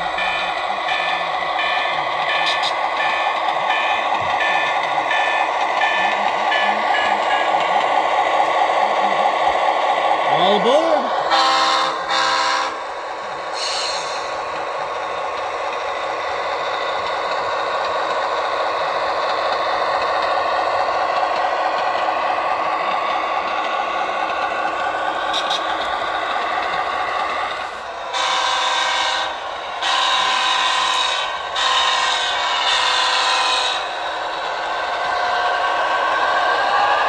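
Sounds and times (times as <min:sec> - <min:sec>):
horn blasts: 0:11.3 - 0:12.8, 0:28.1 - 0:33.8.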